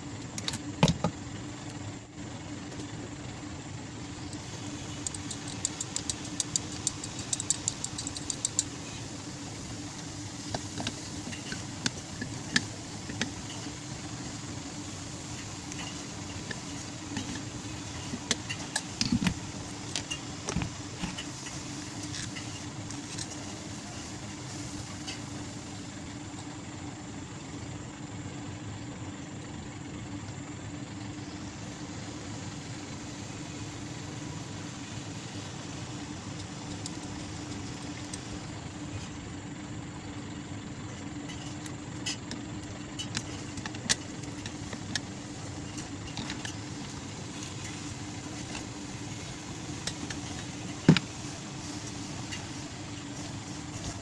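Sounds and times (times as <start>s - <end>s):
low background hum: 0.0s - 54.0s
metal clicks and taps: 5.0s - 8.7s.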